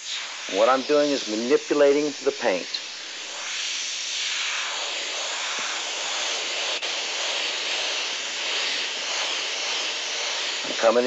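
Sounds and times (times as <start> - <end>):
airbrush hissing: 0.0 - 11.0.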